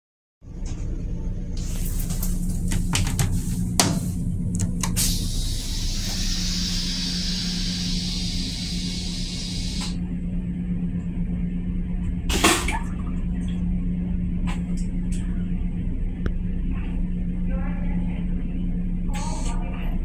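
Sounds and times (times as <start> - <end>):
railcar low hum: 0.4 - 20.0
hiss of rinse water: 4.9 - 10.0
toilet flush whoosh: 4.9 - 10.0.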